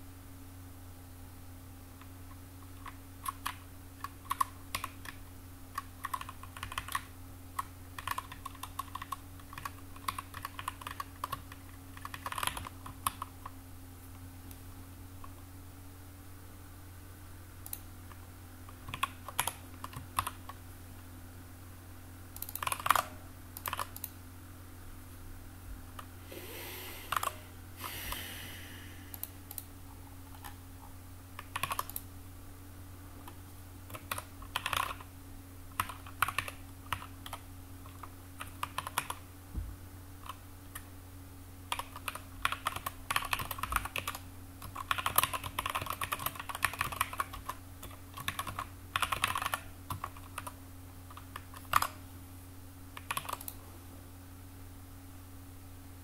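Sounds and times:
steady low hum: 0.0s - 56.0s
typing on computer keyboard: 2.6s - 13.5s, 18.7s - 20.6s, 22.4s - 24.1s, 31.4s - 32.0s, 33.9s - 35.1s, 35.7s - 39.2s, 41.7s - 52.0s, 53.0s - 53.6s.

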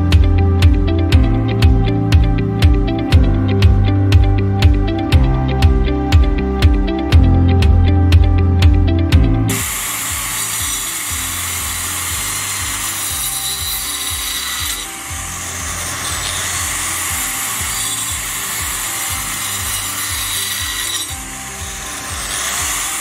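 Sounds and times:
background music with steady beat: 0.0s - 23.0s
circular saw cutting wood: 9.5s - 23.0s.

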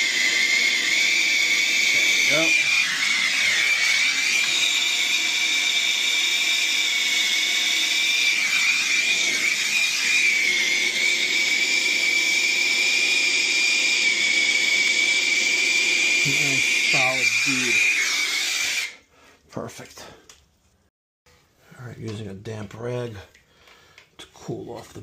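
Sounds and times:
torch hissing with high whistle: 0.0s - 19.0s.

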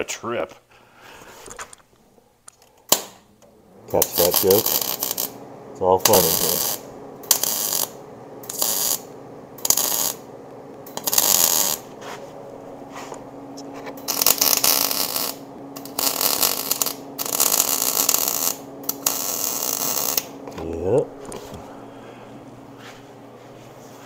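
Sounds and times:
welder arc crackling: 2.8s - 21.6s.

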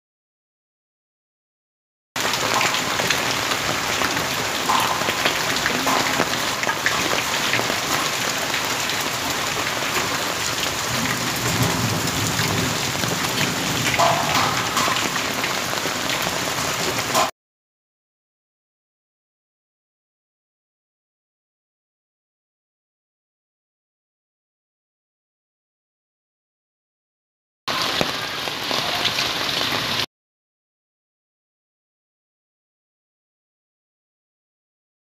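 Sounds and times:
heavy rain on rooftop: 2.2s - 17.3s, 27.7s - 30.1s.

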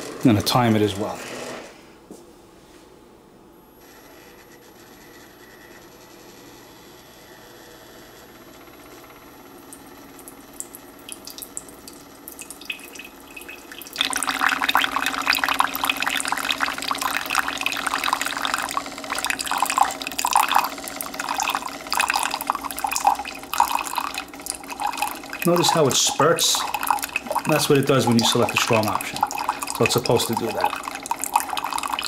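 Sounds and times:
coffeemaker humming: 8.3s - 32.0s.

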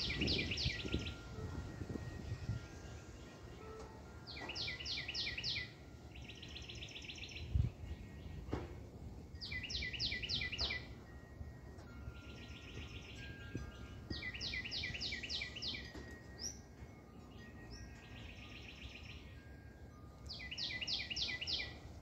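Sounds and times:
songbird singing with trill: 0.0s - 22.0s.

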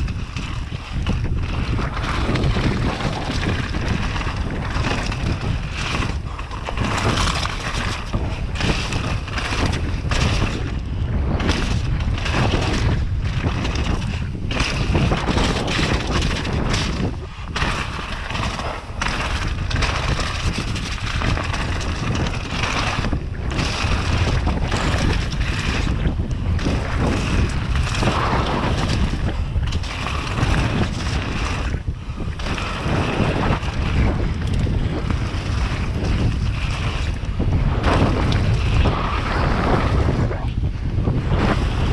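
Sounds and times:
tyres crunching over gravel: 0.0s - 10.8s, 11.4s - 40.1s
wind buffeting microphone: 0.0s - 41.9s.

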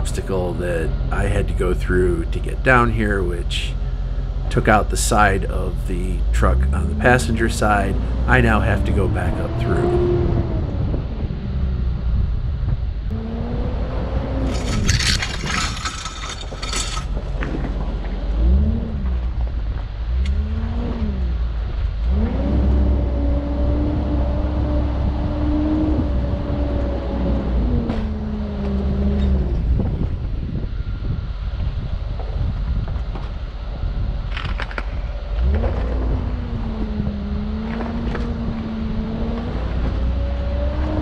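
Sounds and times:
car engine revving: 0.0s - 31.1s, 33.6s - 41.0s
harsh scraping on rocks: 14.4s - 17.3s.

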